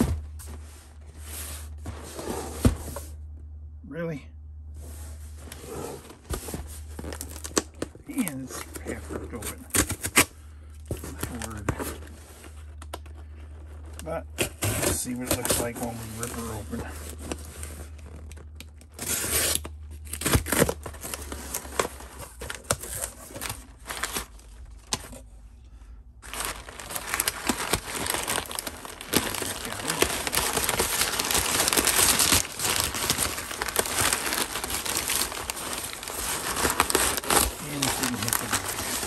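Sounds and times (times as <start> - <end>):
packing paper crinkling: 5.3 - 25.2, 26.2 - 39.0
taped cardboard box tearing open: 7.0 - 11.9, 14.3 - 25.2, 26.2 - 39.0.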